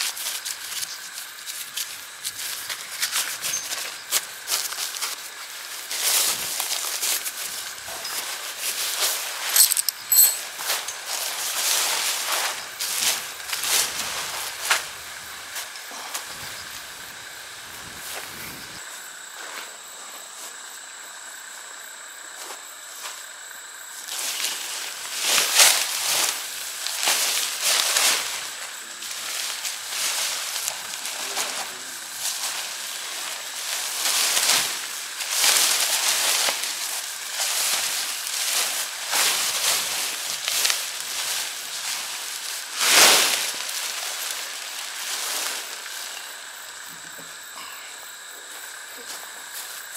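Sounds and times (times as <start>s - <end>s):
tent fabric rustling: 0.0s - 18.8s, 24.1s - 46.4s
nylon fabric rustling: 8.0s - 15.1s
metal tent pegs clinking: 9.4s - 11.3s.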